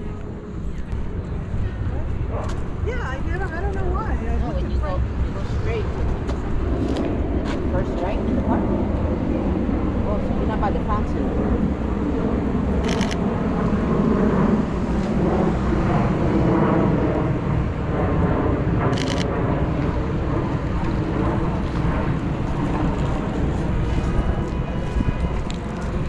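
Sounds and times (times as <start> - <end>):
street traffic: 0.0 - 9.4
camera shutter rapid clicking: 12.8 - 13.2.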